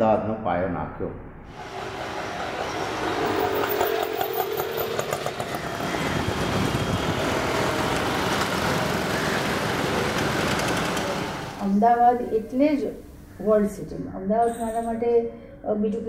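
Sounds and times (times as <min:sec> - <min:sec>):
motorbike and rickshaw engines: 0:01.5 - 0:12.3.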